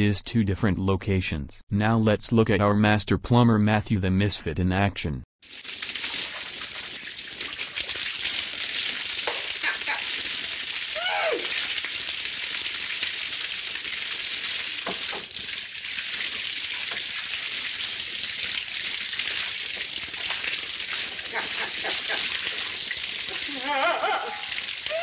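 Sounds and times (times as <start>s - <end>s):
water spraying from pipe: 5.4s - 25.0s
high wavering vocal yelp: 11.0s - 11.6s, 23.3s - 25.0s.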